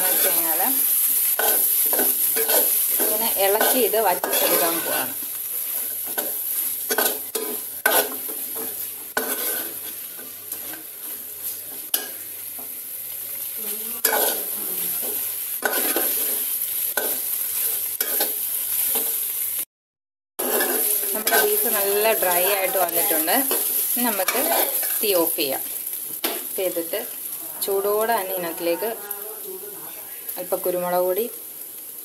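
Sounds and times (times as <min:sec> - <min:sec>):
curry sizzling in a metal pan: 0:00.0 - 0:19.7, 0:20.4 - 0:32.0
spoon scraping and knocking pan: 0:01.4 - 0:05.1, 0:06.0 - 0:10.9, 0:14.1 - 0:19.2.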